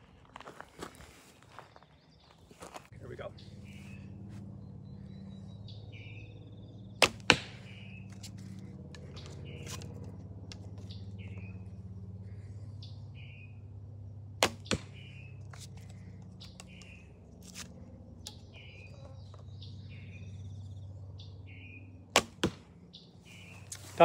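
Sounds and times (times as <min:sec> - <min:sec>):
steady low hum: 0:00.0 - 0:24.0
bird chirping: 0:01.3 - 0:22.1, 0:22.8 - 0:24.0
arrow striking target: 0:07.0 - 0:10.0, 0:14.4 - 0:15.3, 0:22.1 - 0:22.7.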